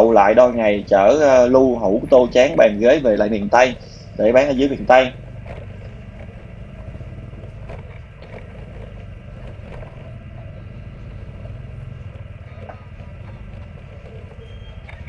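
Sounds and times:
motorbike engine running: 0.0s - 15.0s
road noise: 0.0s - 15.0s.

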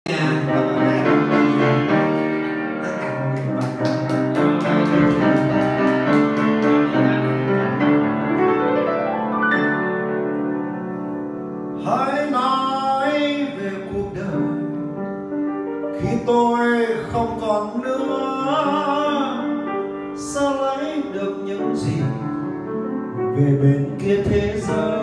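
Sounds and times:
man singing: 0.0s - 4.0s, 11.8s - 15.0s, 15.9s - 25.0s
grand piano ballad: 0.1s - 25.0s.

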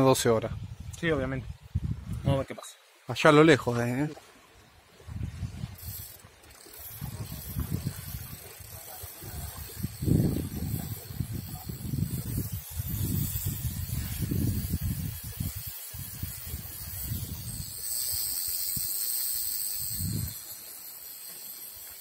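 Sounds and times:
wind buffeting microphone: 0.4s - 2.4s, 5.0s - 6.1s, 6.7s - 18.9s, 19.8s - 20.4s
steady high hiss: 8.8s - 22.0s.

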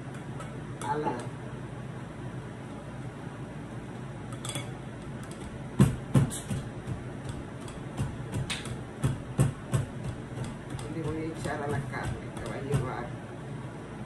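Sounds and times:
pestle knocking in ceramic bowl: 5.3s - 13.1s.

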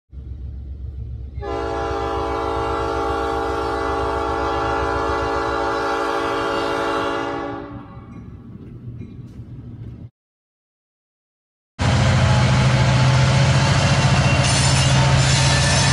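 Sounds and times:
locomotive air horn chord: 1.4s - 8.0s.

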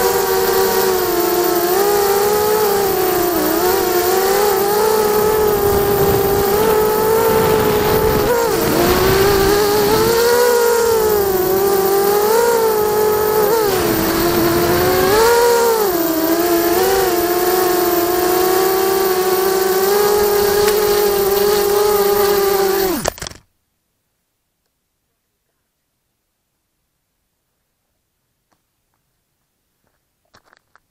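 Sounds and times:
quadcopter motors whining: 0.0s - 23.4s
quadcopter crash clatter: 0.0s - 23.5s.

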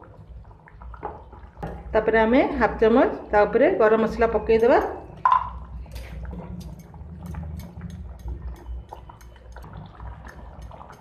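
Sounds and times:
gravy bubbles popping: 0.0s - 2.2s, 4.2s - 11.0s
spatula stirring: 5.9s - 11.0s.

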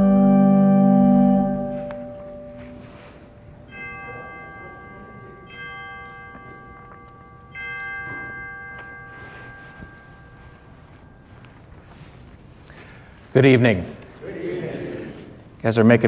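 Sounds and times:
chime ringing: 0.0s - 12.8s.

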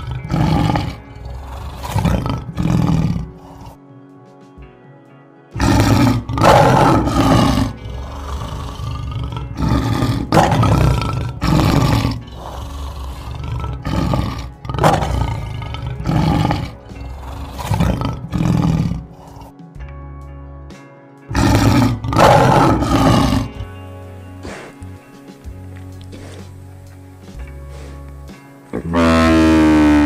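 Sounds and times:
lion roaring and grunting: 0.0s - 3.8s, 5.6s - 19.6s, 21.3s - 23.8s, 24.4s - 24.9s, 26.1s - 26.6s, 27.6s - 28.1s, 28.7s - 30.0s
soft background music: 0.0s - 30.0s.

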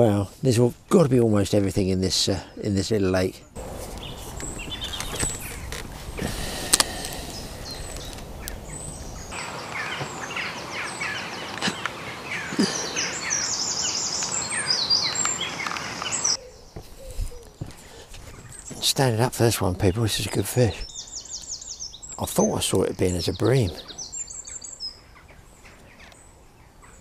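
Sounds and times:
birds singing and chirping: 0.0s - 27.0s
low outdoor rumble: 3.6s - 9.4s.

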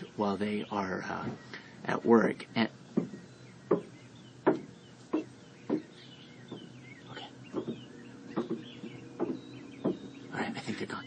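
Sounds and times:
faint bird chirps: 0.0s - 11.0s
dull knocks: 2.9s - 6.8s, 7.5s - 10.1s.

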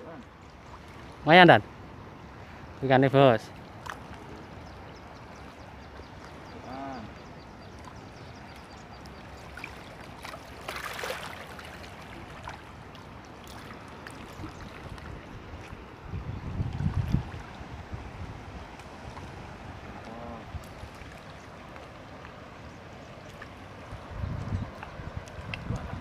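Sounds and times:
fish splashing at water surface: 9.5s - 12.7s
low rumble on microphone: 24.0s - 26.0s.

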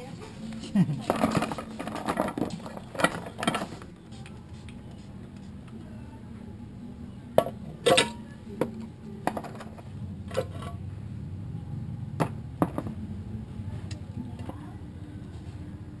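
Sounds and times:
low steady hum: 0.0s - 16.0s
metal parts clinking in basin: 1.0s - 3.8s, 7.8s - 8.2s.

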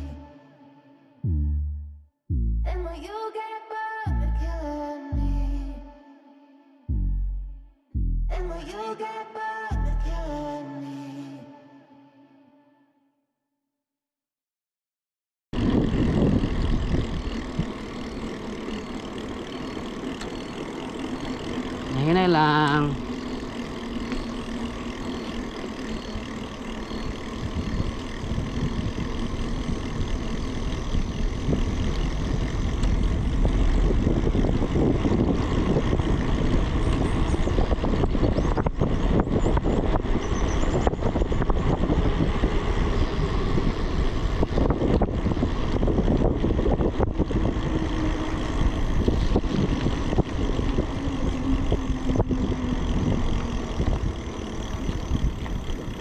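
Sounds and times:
bicycle tyre rumble on road: 0.0s - 0.4s, 15.6s - 56.0s
wind buffeting microphone: 15.6s - 19.9s, 21.2s - 56.0s.

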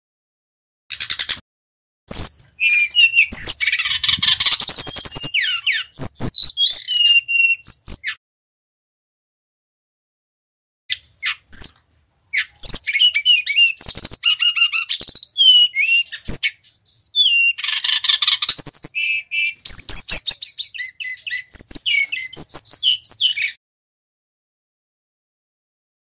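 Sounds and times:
bird singing whistled song: 2.1s - 8.2s, 10.9s - 23.6s.

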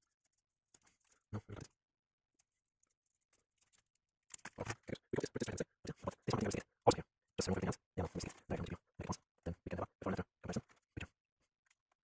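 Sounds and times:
man mumbling: 1.4s - 1.7s.

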